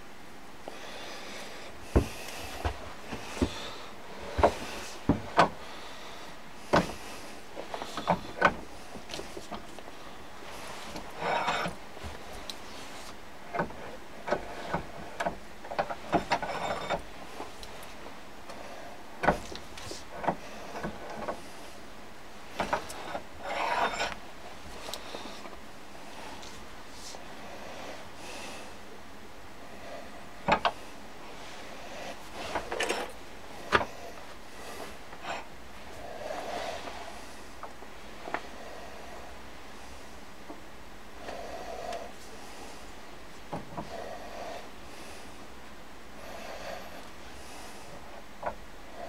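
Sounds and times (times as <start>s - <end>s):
scraping rustle: 6.8s - 18.1s, 22.5s - 27.4s.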